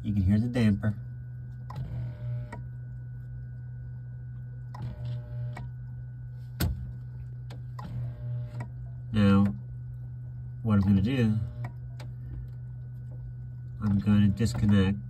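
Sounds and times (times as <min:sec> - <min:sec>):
refrigerator air damper motor: 0:00.0 - 0:15.0
steady low hum: 0:00.0 - 0:15.0.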